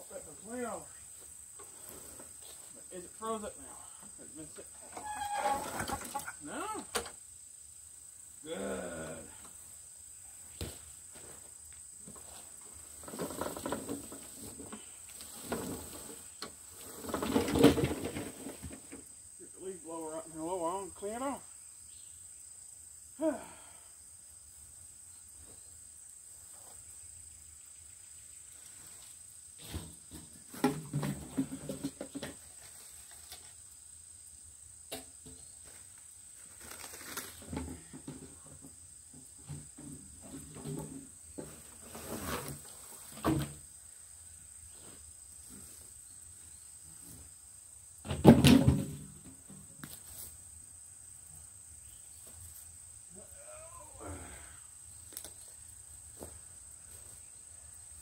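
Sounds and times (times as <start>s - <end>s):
rustling of weeds and debris: 0.0s - 6.4s, 10.3s - 19.2s, 28.4s - 33.7s, 35.2s - 47.4s, 51.9s - 58.0s
knocks and clatters of debris: 13.0s - 19.0s, 29.6s - 32.8s, 36.6s - 43.6s, 48.0s - 49.4s.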